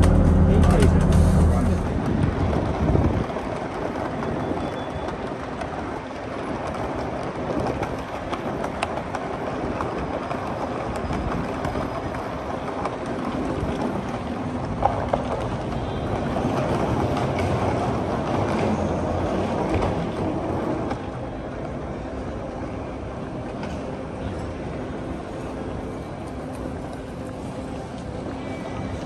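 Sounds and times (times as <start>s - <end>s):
suitcase rolling over paving slabs: 1.2s - 22.2s.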